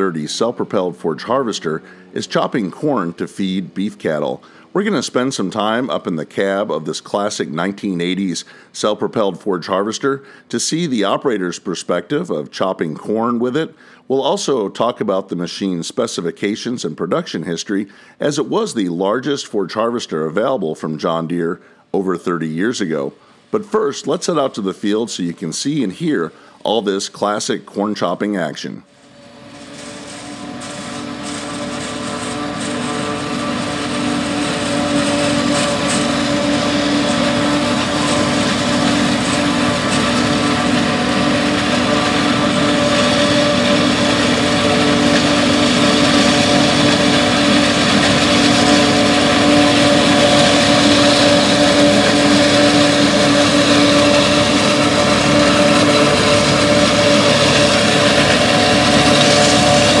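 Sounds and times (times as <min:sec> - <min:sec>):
tractor engine: 0:00.0 - 1:00.0
forage harvester chopping: 0:29.4 - 1:00.0.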